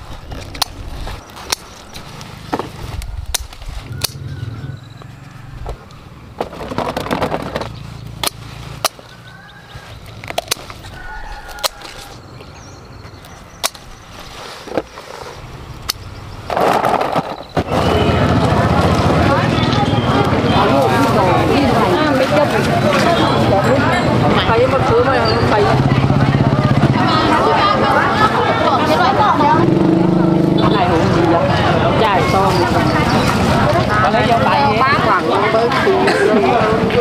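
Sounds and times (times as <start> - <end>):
leaves rustling: 0.0 - 6.2, 7.7 - 12.2, 13.7 - 15.7.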